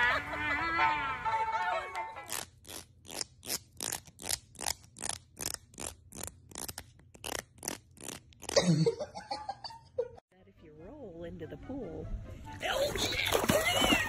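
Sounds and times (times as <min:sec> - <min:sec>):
cat gagging: 0:12.9 - 0:14.0.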